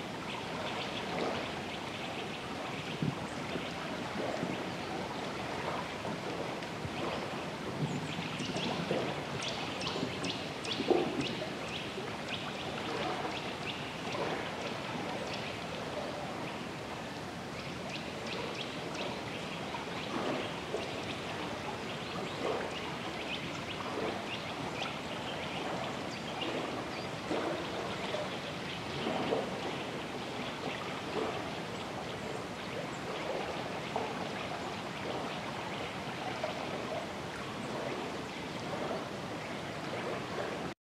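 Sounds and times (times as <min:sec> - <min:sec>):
water gurgling: 0:00.0 - 0:40.8.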